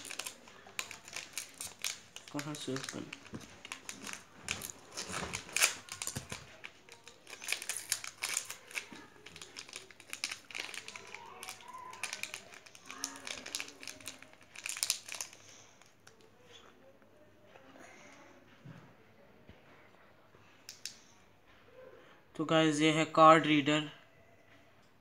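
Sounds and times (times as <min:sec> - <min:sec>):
plastic packet crinkling: 0:00.0 - 0:16.2.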